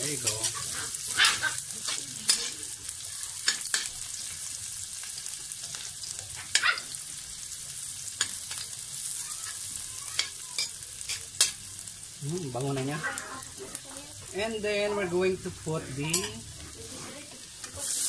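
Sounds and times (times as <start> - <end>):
onion sizzling in a wok: 0.0 - 18.0
metal spatula scraping a pan: 0.1 - 2.8, 15.8 - 18.0.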